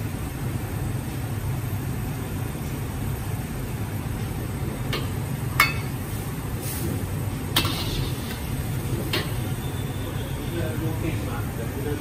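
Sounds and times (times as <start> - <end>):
metal utensils clinking on wok: 5.0 - 6.0.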